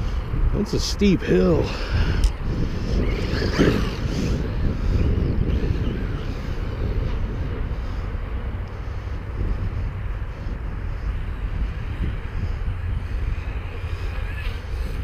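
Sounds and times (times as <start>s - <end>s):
wind rumble on microphone: 0.0s - 15.0s
electric rc truck running: 9.4s - 15.0s.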